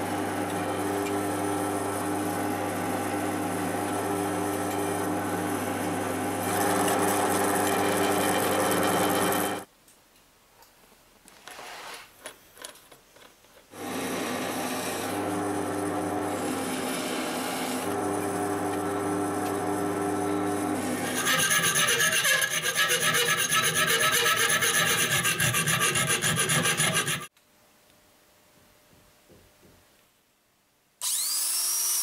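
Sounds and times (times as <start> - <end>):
drill press drilling steel: 0.4 - 9.6, 13.8 - 22.2.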